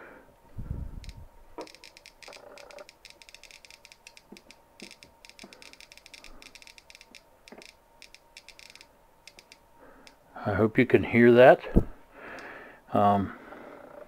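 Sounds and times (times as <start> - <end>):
geiger counter clicking: 1.0 - 10.2.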